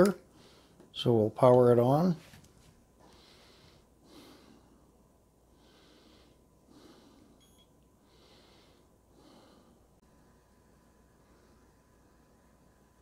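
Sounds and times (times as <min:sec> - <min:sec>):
faint breathing: 0:00.2 - 0:00.9, 0:03.0 - 0:12.8
short high beep: 0:07.4 - 0:07.7.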